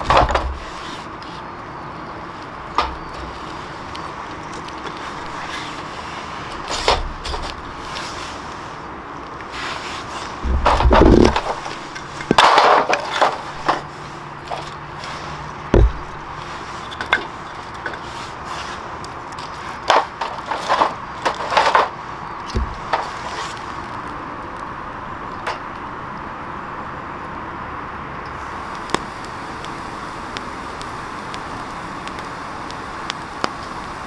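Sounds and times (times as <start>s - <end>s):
firewood knocking on metal: 0.0s - 0.7s, 10.4s - 13.9s, 15.7s - 18.0s, 19.8s - 23.2s
steady low background noise: 0.0s - 34.0s.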